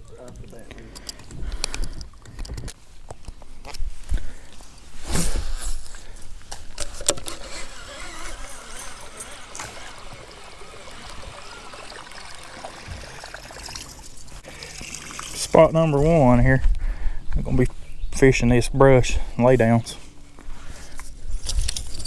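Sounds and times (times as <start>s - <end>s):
lure blade churning water: 7.6s - 15.4s.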